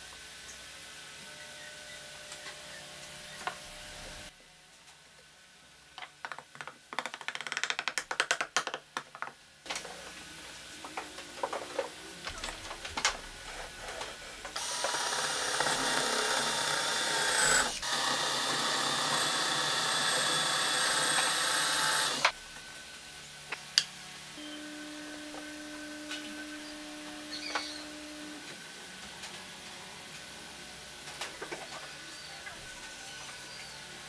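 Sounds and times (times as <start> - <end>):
cordless drill boring into wood: 14.6 - 22.3.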